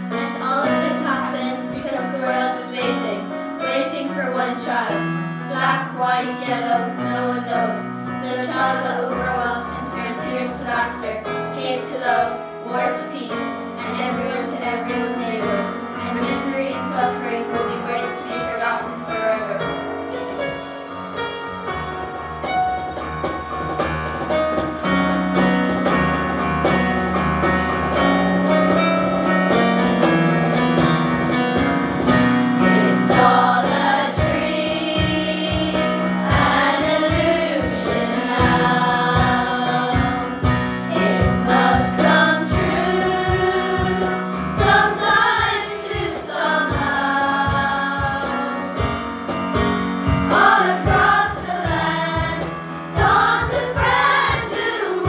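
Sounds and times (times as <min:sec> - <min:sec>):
keyboard chords: 0:00.0 - 0:55.0
children's choir singing: 0:32.6 - 0:48.9, 0:50.2 - 0:55.0.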